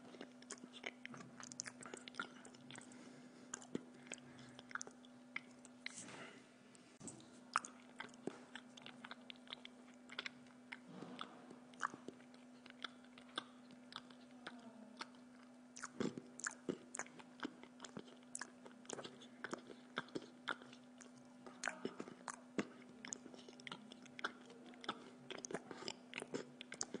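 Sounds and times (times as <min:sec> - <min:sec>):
person chewing bread: 0:00.0 - 0:06.1, 0:07.0 - 0:27.0
faint steady hum: 0:00.0 - 0:27.0.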